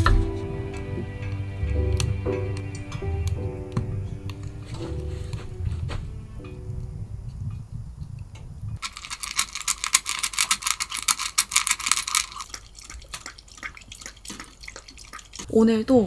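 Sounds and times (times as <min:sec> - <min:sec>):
dog lapping from metal bowl: 0:11.3 - 0:15.5.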